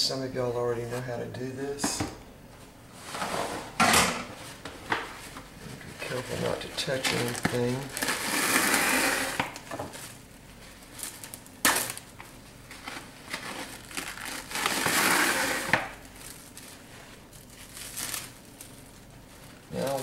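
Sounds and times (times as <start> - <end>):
plastic cling wrap crinkling: 5.0 - 20.0.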